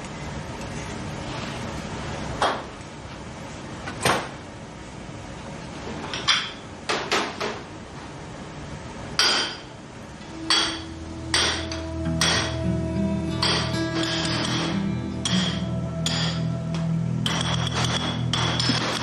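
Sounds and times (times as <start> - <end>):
dishes clinking on metal counter: 10.3 - 12.6, 13.4 - 16.5, 17.2 - 19.0.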